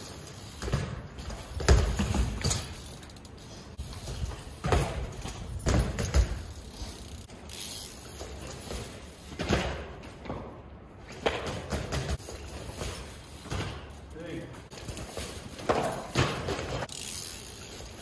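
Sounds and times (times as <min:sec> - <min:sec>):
bike tyres thudding on concrete steps: 0:00.0 - 0:18.0.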